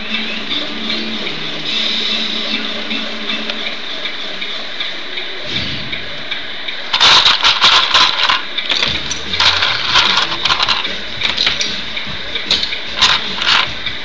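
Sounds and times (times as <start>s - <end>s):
hydraulics whirring: 0.0s - 14.0s
plastic bricks clattering: 6.9s - 11.7s, 12.5s - 13.7s.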